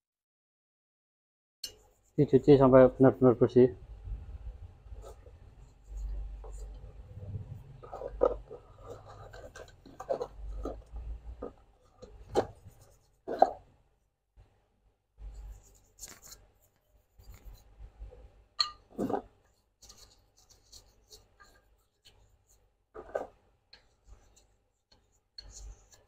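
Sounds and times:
brush scrubbing metal: 0:07.8 - 0:13.6, 0:19.8 - 0:26.0.

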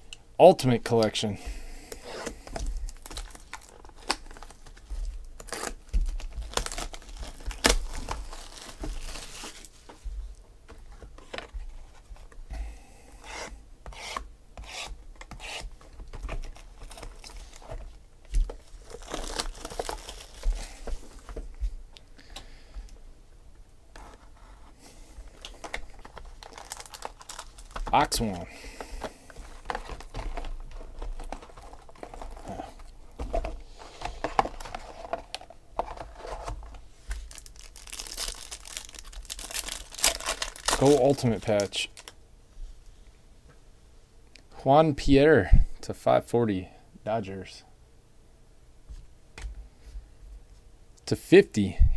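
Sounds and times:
shrink wrap tearing and crinkling: 0:02.2 - 0:09.7, 0:15.5 - 0:17.7, 0:18.3 - 0:20.8, 0:25.3 - 0:28.4, 0:29.3 - 0:33.3, 0:34.3 - 0:42.2.

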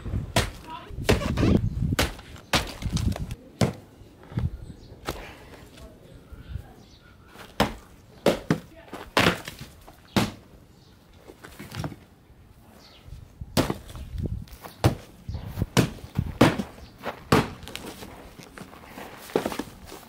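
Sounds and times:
axe chopping wood: 0:00.3 - 0:01.3, 0:01.9 - 0:03.9, 0:07.5 - 0:10.4, 0:13.6 - 0:14.0, 0:14.8 - 0:15.1, 0:15.7 - 0:17.9.

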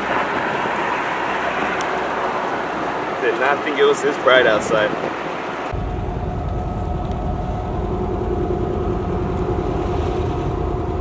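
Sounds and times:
engine droning: 0:00.0 - 0:11.0
road noise: 0:00.0 - 0:11.0.

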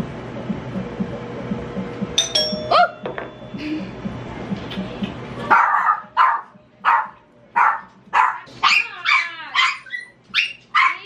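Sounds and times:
dog barking: 0:05.5 - 0:11.0.

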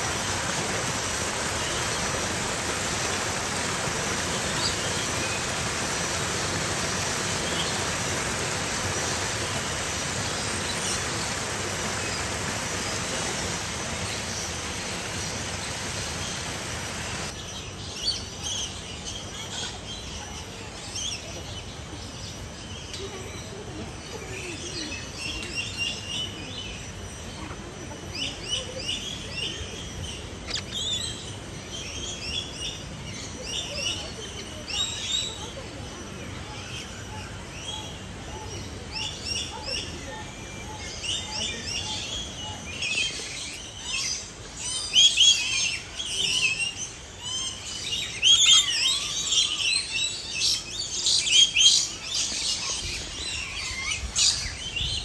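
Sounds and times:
high bird chirps and calls: 0:22.7 - 0:55.0.

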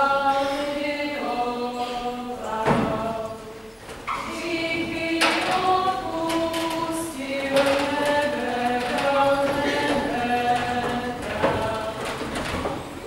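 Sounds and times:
group singing a folk song: 0:00.0 - 0:12.8.

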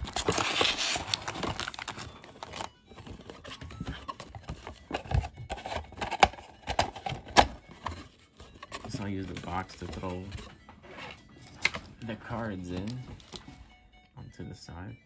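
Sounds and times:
foil packs crinkling: 0:00.0 - 0:10.5.

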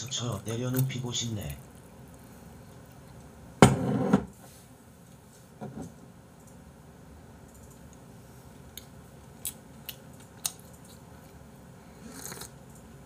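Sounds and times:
slurping sip from a mug: 0:12.0 - 0:12.5.

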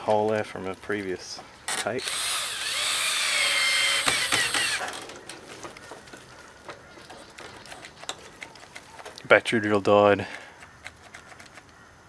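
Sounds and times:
cordless drill whining: 0:02.0 - 0:05.0.

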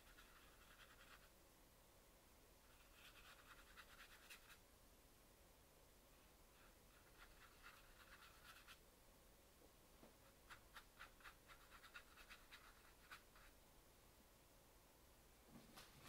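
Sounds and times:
brush strokes on paper: 0:00.0 - 0:01.4, 0:02.6 - 0:04.6, 0:06.1 - 0:08.8.

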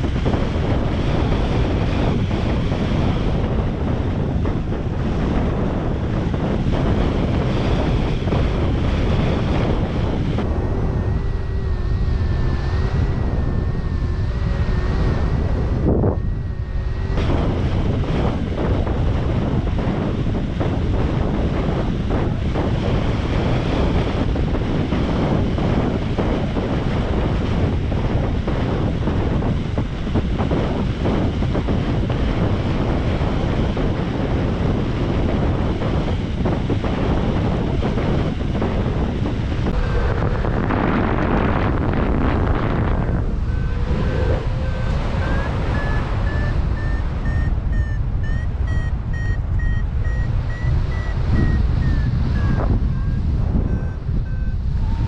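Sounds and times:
wind buffeting microphone: 0:00.0 - 0:55.0
variometer beeps rising in pitch: 0:43.0 - 0:55.0.

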